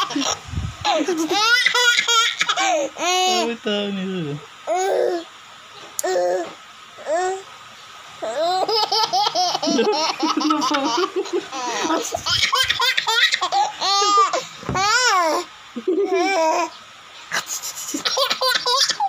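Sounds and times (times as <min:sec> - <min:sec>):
baby laughing: 0:00.0 - 0:03.4, 0:08.2 - 0:16.7, 0:17.3 - 0:19.0.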